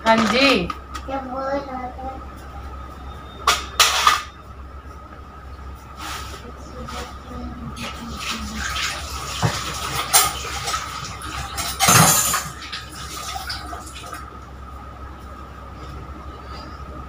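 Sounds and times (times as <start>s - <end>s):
tap water running into sink: 7.8s - 14.2s
pots and cutlery clattering: 9.4s - 13.6s.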